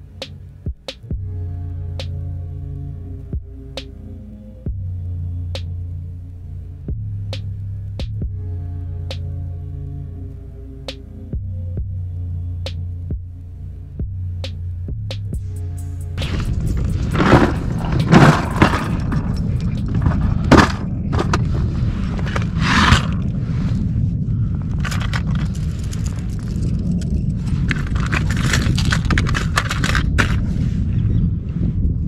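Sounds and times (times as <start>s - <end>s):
wind rumble on microphone: 16.2s - 32.0s.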